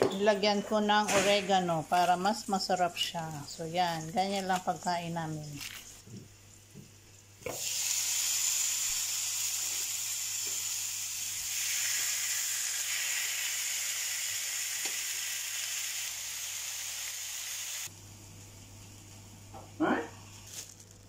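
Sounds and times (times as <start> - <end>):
steaks sizzling on a grill pan: 7.5 - 17.9.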